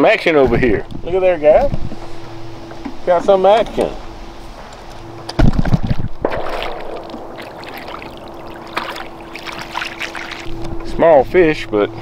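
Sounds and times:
electric trolling motor hum: 1.9s - 12.0s
fish splashing at surface: 5.4s - 10.5s.

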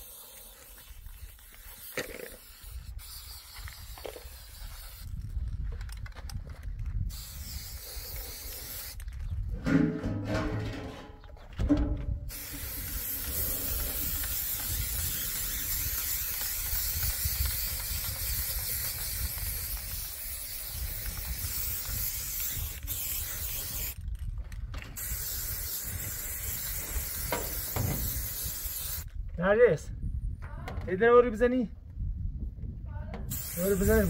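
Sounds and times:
spray paint can hissing: 0.0s - 5.6s, 7.0s - 9.2s, 12.3s - 24.2s, 25.0s - 29.1s, 33.3s - 34.0s.

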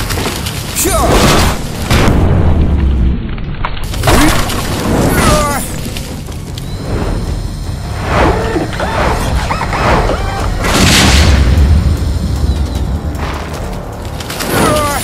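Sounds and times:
heavy booms and blasts: 0.9s - 6.2s, 7.9s - 12.4s
dramatic music: 4.4s - 15.0s.

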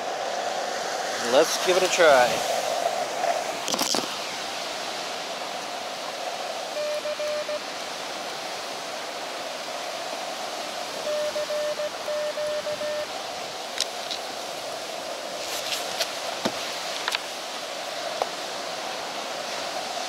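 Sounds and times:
receiver hiss: 0.0s - 14.9s
faint surf: 0.0s - 20.0s
morse code tones: 6.7s - 7.6s, 11.0s - 13.1s.

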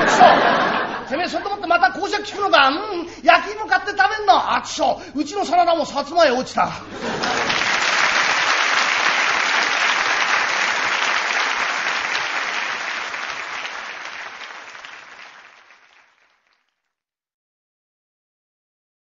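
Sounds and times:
audience applauding: 7.0s - 16.8s.

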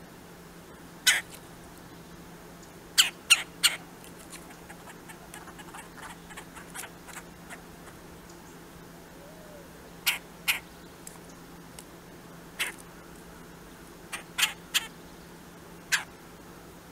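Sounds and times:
woodpecker harsh calls: 1.0s - 1.4s, 3.0s - 8.1s, 9.4s - 10.7s, 12.6s - 12.9s, 14.1s - 15.0s, 15.9s - 16.1s.

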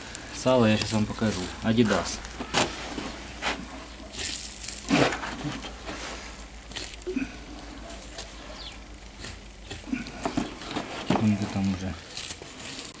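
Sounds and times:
steady low hum: 0.0s - 13.0s
meat ripping off carcass: 4.1s - 11.3s, 12.0s - 13.0s.

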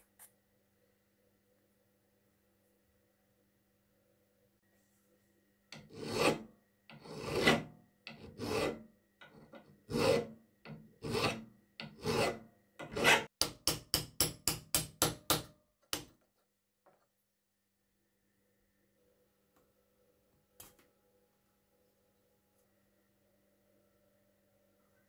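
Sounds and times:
hand file scraping: 5.8s - 13.3s.

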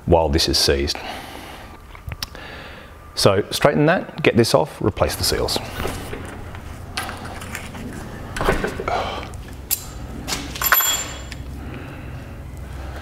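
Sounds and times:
metal parts knocking and clinking: 9.7s - 11.4s.

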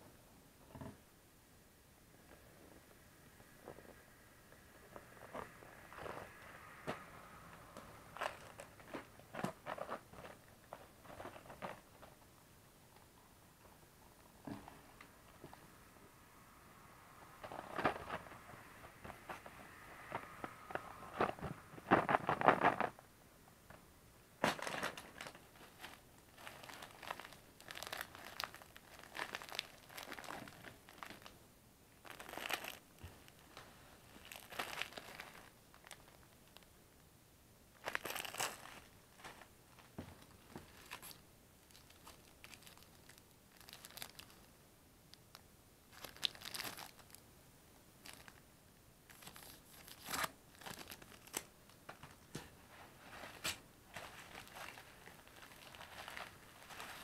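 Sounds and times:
cardboard rustling: 8.1s - 12.2s, 17.4s - 23.0s, 24.4s - 31.3s, 49.1s - 57.0s
plastic wrapping crinkling: 8.1s - 12.2s, 17.4s - 23.0s, 24.4s - 31.4s, 32.0s - 36.7s, 37.8s - 44.5s, 45.3s - 47.2s, 48.0s - 48.4s, 49.1s - 57.0s.

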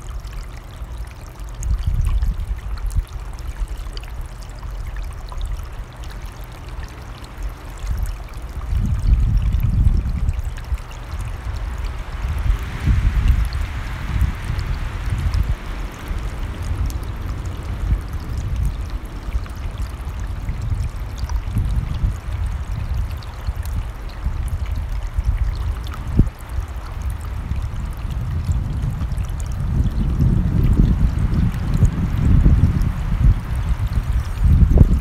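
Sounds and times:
wind rumble on microphone: 0.0s - 35.0s
stream rushing: 10.7s - 24.2s.

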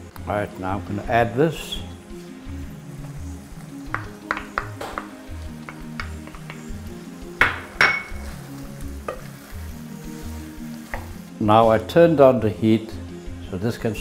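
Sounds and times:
bowl and utensil clinking on pan: 7.4s - 8.3s.

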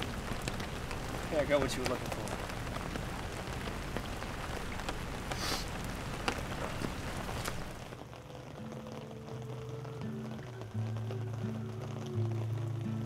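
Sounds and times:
raindrops ticking: 0.0s - 13.0s
steady rain: 0.0s - 13.0s
quiet background music: 8.0s - 13.0s.

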